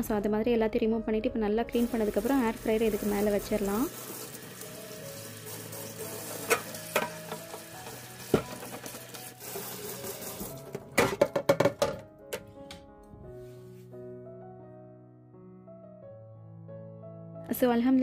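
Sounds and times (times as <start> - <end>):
tap water running onto metal: 1.8 - 11.7
metal shelf clattering in sink: 6.3 - 9.0, 10.6 - 12.0.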